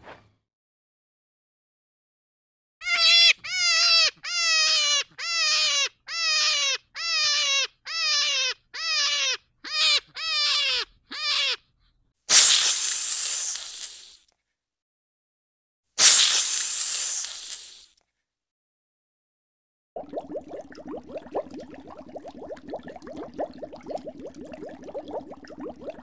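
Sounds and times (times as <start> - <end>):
animal calling loudly: 2.8 - 11.7
snake hissing: 12.3 - 14.2, 16.0 - 17.9.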